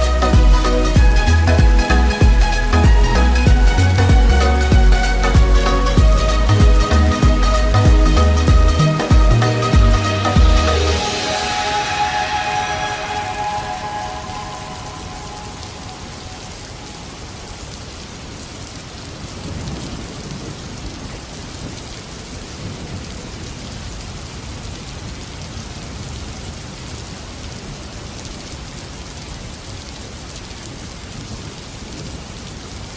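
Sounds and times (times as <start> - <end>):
low thunder rumble: 0.0 - 11.3
steady rain: 0.0 - 32.9.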